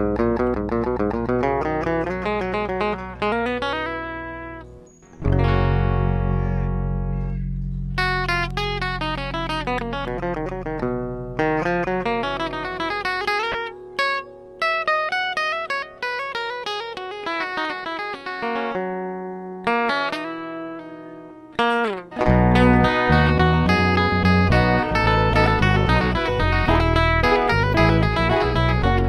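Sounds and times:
plucked guitar runs: 0.0s - 29.0s
held low bass: 5.2s - 12.1s, 22.3s - 29.0s.

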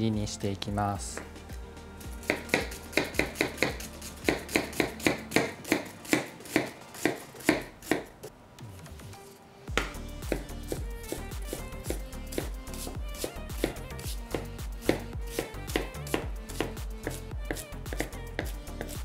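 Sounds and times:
knife chopping on cutting board: 2.2s - 8.3s, 9.7s - 19.0s.

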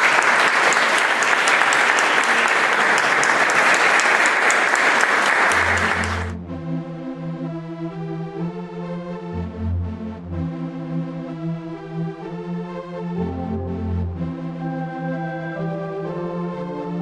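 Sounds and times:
people applauding: 0.0s - 6.4s
music with long held notes: 5.1s - 17.0s.

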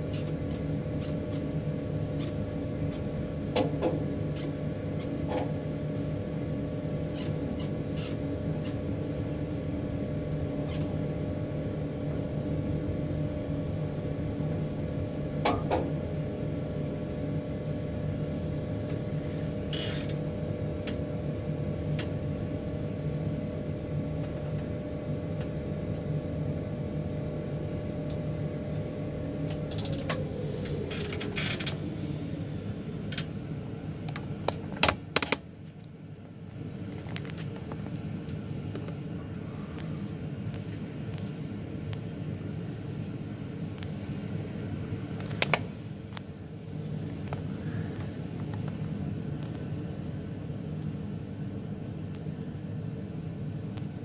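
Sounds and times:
crane engine running: 26.8s - 35.2s.

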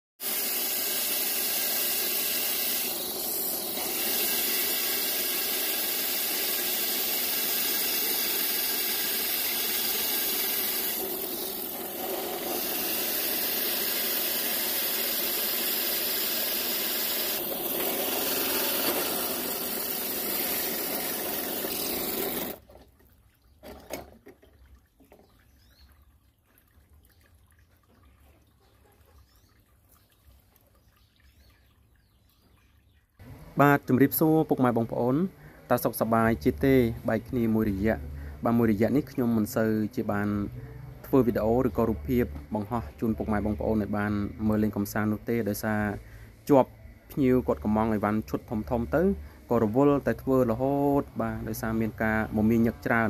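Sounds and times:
drill grinding through stone: 0.2s - 22.6s.

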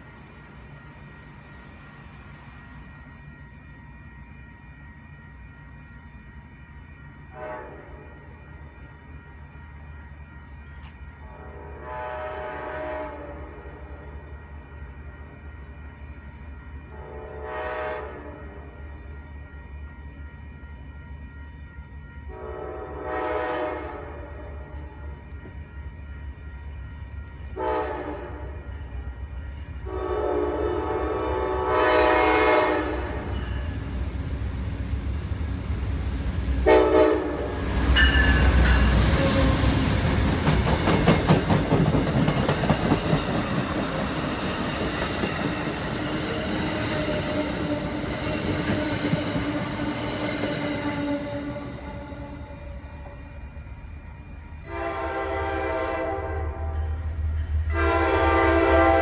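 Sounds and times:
train passing with low rumble: 0.0s - 59.0s
train air horn blasts: 7.3s - 8.2s, 11.3s - 13.6s, 16.9s - 18.6s, 22.3s - 24.7s, 27.6s - 28.5s, 29.8s - 33.7s, 36.6s - 39.8s, 54.6s - 57.0s, 57.7s - 59.0s
wheels clicking over rail joints: 40.0s - 46.0s.

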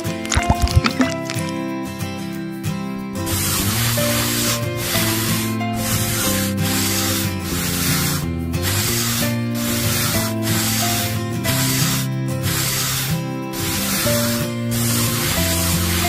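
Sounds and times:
trowel scraping wet cement: 0.0s - 1.6s, 3.2s - 16.0s
background music: 0.0s - 16.0s.

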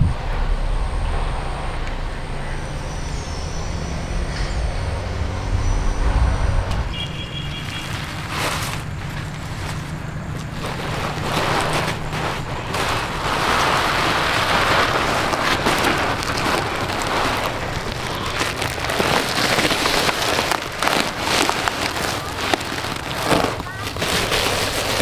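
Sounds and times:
plastic sack rustling and crinkling: 2.4s - 25.0s.

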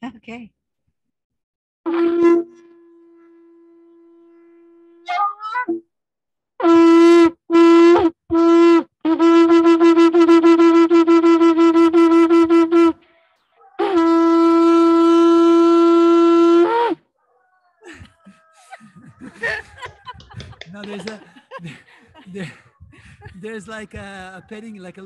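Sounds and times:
shofar blasts: 1.9s - 5.5s, 6.6s - 13.0s, 13.8s - 17.1s.

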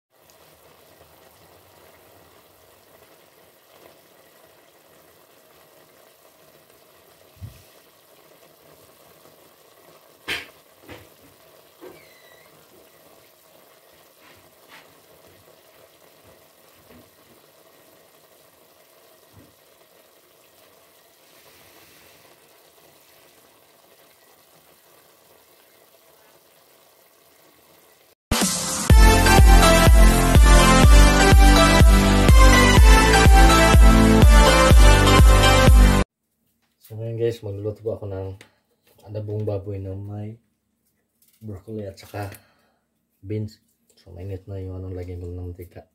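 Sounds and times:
pot simmering faintly: 0.1s - 28.2s.

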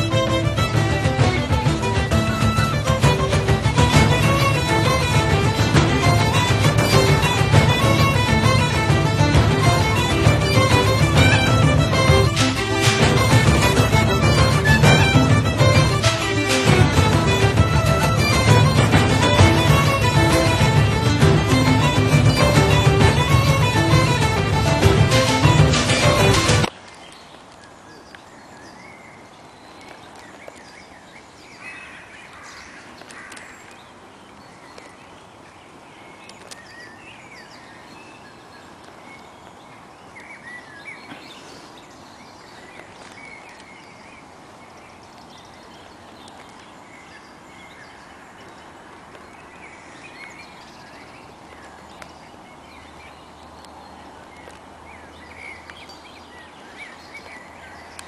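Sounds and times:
background hiss: 0.0s - 29.5s
birds chirping: 0.0s - 58.0s.

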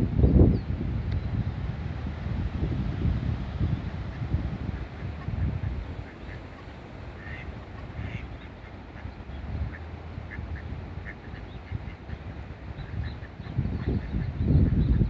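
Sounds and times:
ducks calling: 3.9s - 15.0s.

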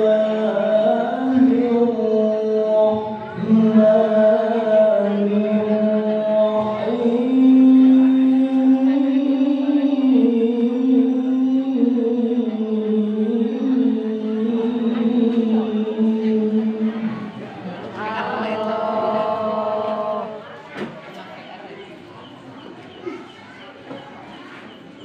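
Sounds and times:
man reciting melodically over loudspeaker: 0.0s - 20.7s.

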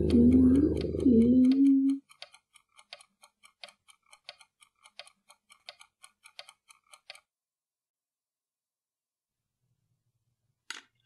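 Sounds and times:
rapid faint ticking: 0.0s - 7.3s.

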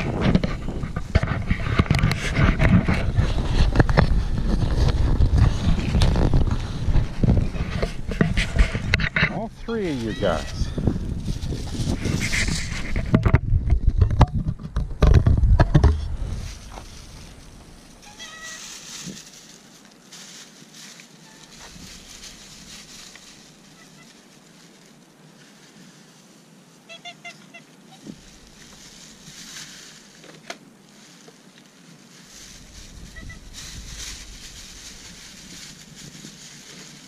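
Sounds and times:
low rumble on microphone: 0.0s - 19.4s, 32.3s - 37.0s
ducks quacking: 8.5s - 10.8s.

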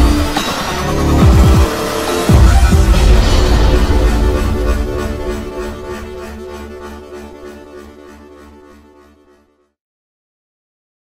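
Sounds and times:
dubstep electronic music: 0.0s - 8.4s.

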